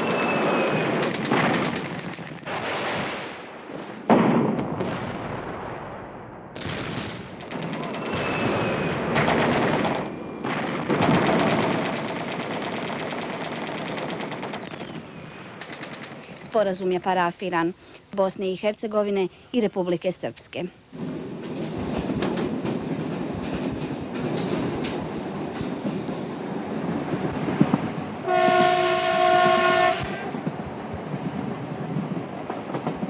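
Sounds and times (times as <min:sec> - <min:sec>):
automatic gunfire: 0:06.6 - 0:15.0.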